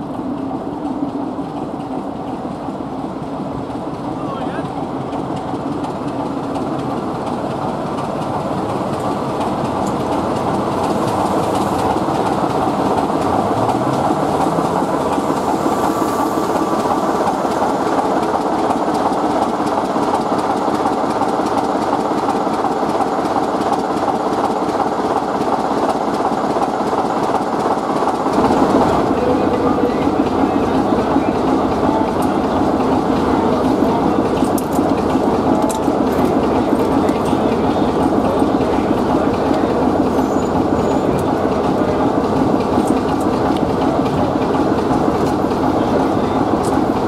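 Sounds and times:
diesel locomotive engine running: 0.0 - 47.0
short rising note: 13.3 - 18.3.

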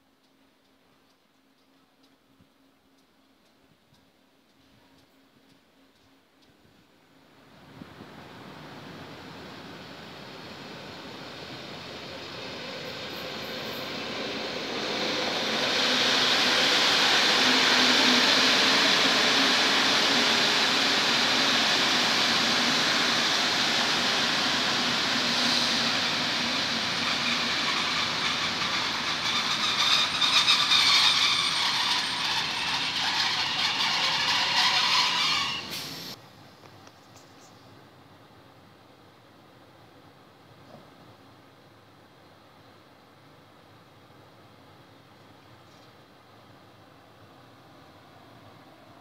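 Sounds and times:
train wheels rumbling on rail: 7.4 - 36.2
high squealing: 25.3 - 35.8.

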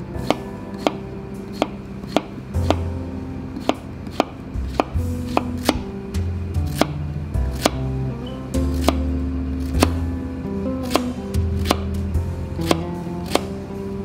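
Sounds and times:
knife chopping on plastic board: 3.6 - 5.9, 6.7 - 7.8, 8.7 - 10.0, 10.8 - 12.0, 12.6 - 13.5.

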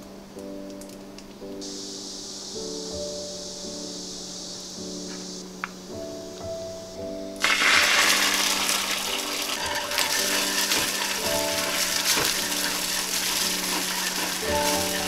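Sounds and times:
soft background music: 0.0 - 15.0
egg sizzling in hot pan: 7.4 - 15.0
chopsticks scraping pan: 9.6 - 15.0.

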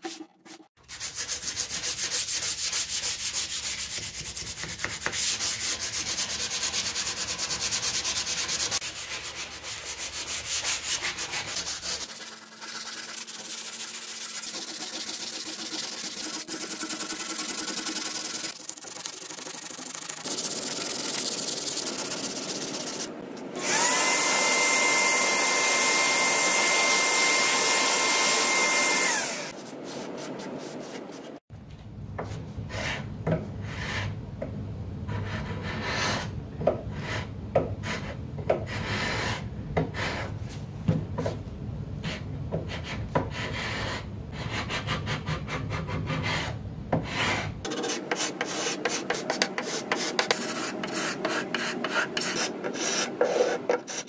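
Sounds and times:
sanding sponge scraping wood: 0.0 - 23.2, 47.1 - 54.0
vacuum motor whine: 23.6 - 29.5.

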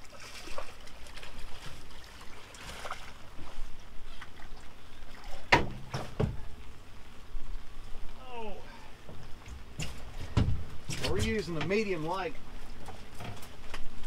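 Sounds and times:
water: 0.0 - 14.0
wind: 0.0 - 14.0
dull knocks on a boat: 5.5 - 6.4, 9.8 - 11.7.

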